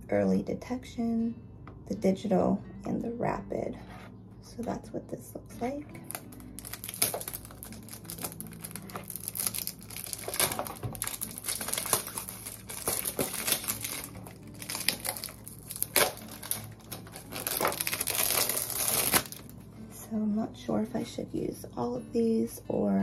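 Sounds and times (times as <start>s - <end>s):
cardboard packaging crinkling: 6.0s - 19.6s.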